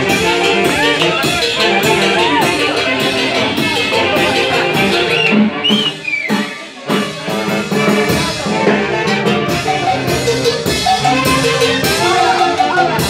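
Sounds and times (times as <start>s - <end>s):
brass band dance tune: 0.0s - 13.0s.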